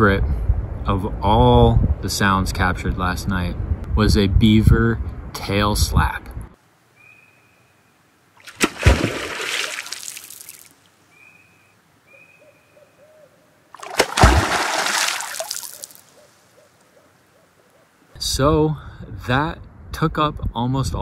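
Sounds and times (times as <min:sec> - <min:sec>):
water splashing: 0:08.4 - 0:10.9, 0:13.7 - 0:16.4
tail slaps on water: 0:08.5 - 0:10.0, 0:13.8 - 0:16.0.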